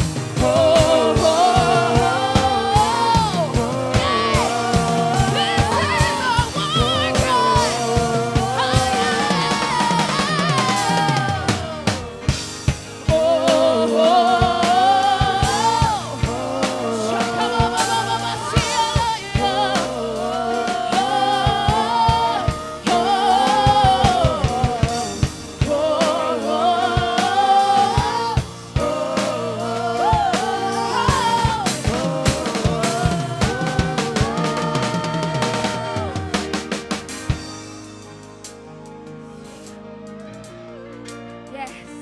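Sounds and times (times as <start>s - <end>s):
drum kit steady beat: 0.0s - 42.0s
person singing: 0.4s - 12.4s.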